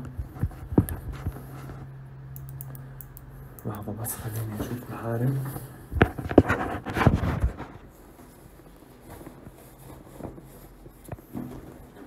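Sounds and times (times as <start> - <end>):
handling noise rustling and knocking: 6.0 - 12.0.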